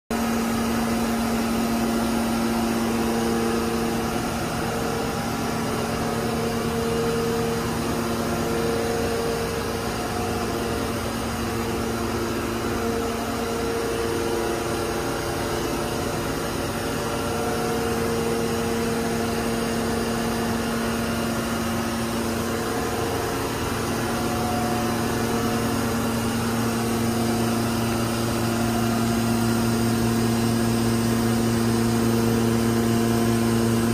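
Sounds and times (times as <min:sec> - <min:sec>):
low machine drone: 0:00.1 - 0:33.9
whining machine tones: 0:00.2 - 0:33.9.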